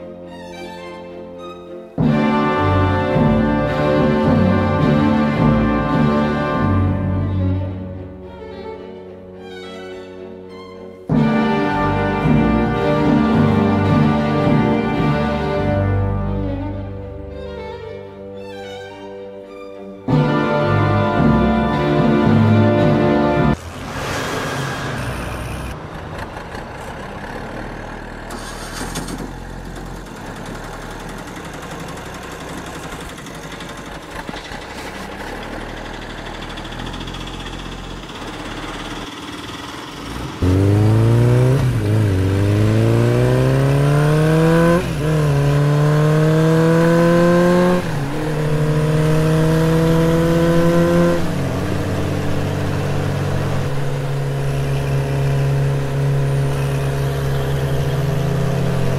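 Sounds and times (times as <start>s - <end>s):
car engine accelerating through gears: 21.3s - 58.9s.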